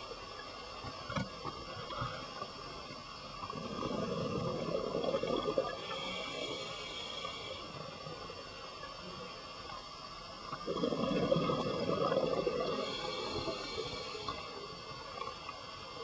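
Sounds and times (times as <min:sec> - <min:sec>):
diver's regulator bubbling exhale: 0:03.5 - 0:07.4, 0:10.5 - 0:14.5.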